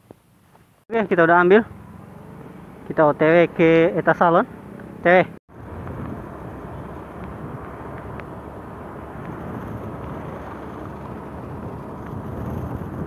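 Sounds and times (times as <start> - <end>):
motorcycle engine rumble: 0.2 - 13.0
wind noise: 5.5 - 13.0
tyre noise: 6.9 - 13.0.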